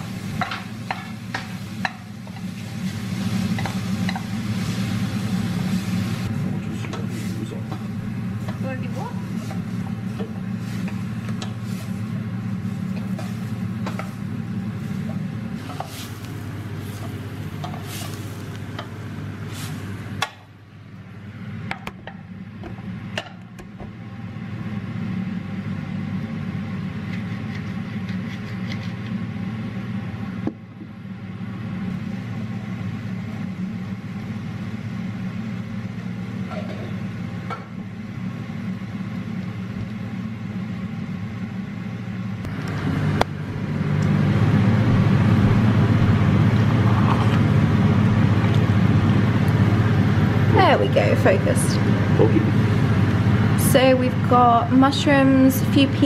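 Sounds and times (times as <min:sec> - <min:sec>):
wooden spoon stirring in saucepan: 0:07.0 - 0:19.8.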